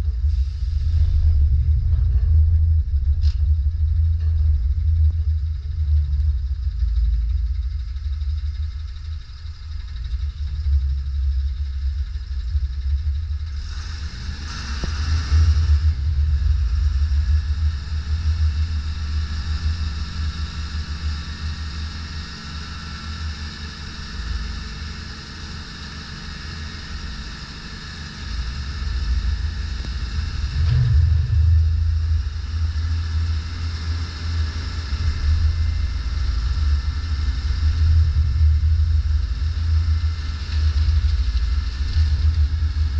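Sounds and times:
hydraulic high whine: 0.0s - 42.9s
hydraulic hiss: 0.2s - 1.3s
diesel truck engine idling: 28.2s - 42.9s.

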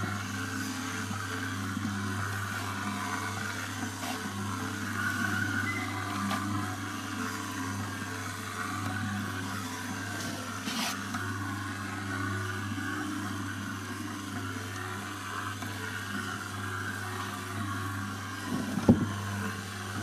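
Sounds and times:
dough mixer humming: 0.0s - 20.0s
dough scraping in steel pot: 10.2s - 11.0s.

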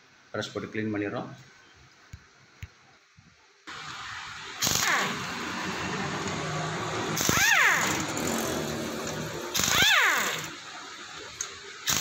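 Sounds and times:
air hiss: 3.7s - 10.6s
impact wrench whining: 3.7s - 12.0s.

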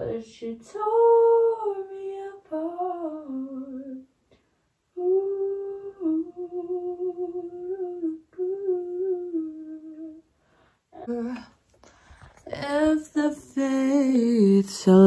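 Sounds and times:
woman humming: 5.0s - 10.2s.

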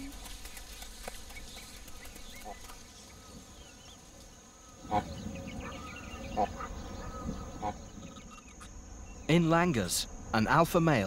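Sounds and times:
high insect drone: 0.0s - 11.0s
loud animal calls: 4.7s - 8.7s.

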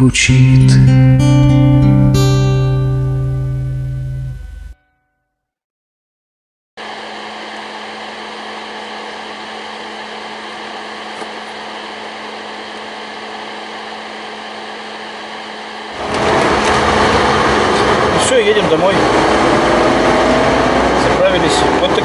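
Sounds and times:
fan whirring: 6.8s - 22.0s
car engine hum: 15.1s - 22.0s.

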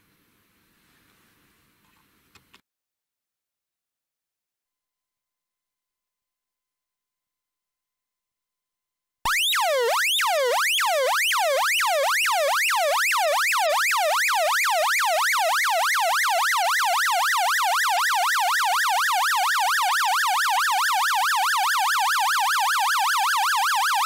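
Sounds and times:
swooping warning tone: 9.3s - 24.0s.

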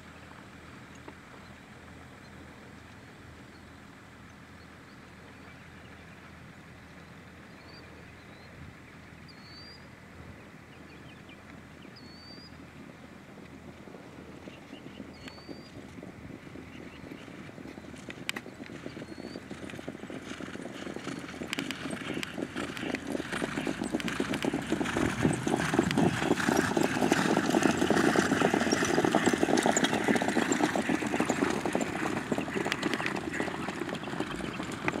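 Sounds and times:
trotting hoofbeats on dirt: 10.7s - 35.0s
carts rattling: 20.6s - 35.0s.

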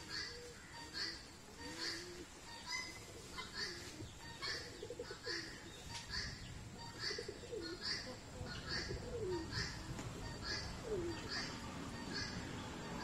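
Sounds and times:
pigeons cooing: 0.0s - 12.5s.

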